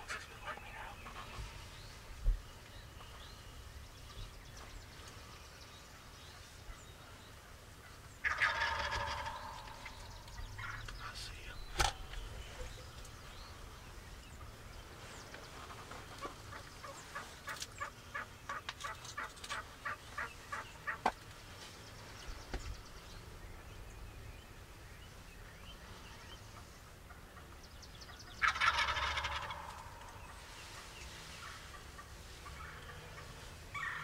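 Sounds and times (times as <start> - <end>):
turkeys calling: 0.0 - 1.8, 6.0 - 21.4, 26.1 - 34.0
turkey gobble: 7.8 - 10.8, 16.1 - 21.1, 28.3 - 34.0.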